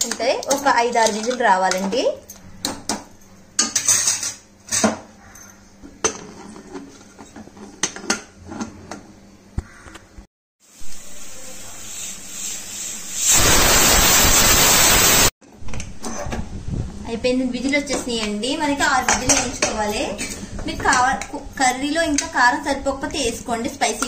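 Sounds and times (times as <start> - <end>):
pressure cooker steam hiss: 10.6 - 15.3.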